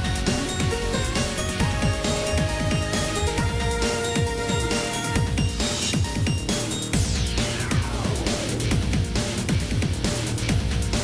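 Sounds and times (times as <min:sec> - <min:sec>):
electronic music with fast beat: 0:00.0 - 0:11.0.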